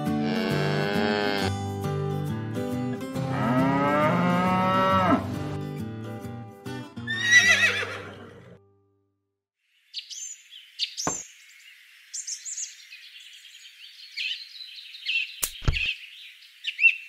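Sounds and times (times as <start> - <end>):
cow mooing: 0.0 - 1.6, 3.2 - 5.6
light background music: 0.0 - 8.2
horse whinny: 7.1 - 8.6.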